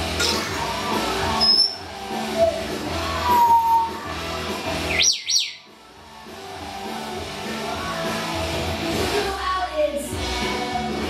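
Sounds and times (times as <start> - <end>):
background music: 0.0 - 11.0
parrot whistled chirps: 1.4 - 1.8, 3.2 - 4.0, 4.9 - 5.7.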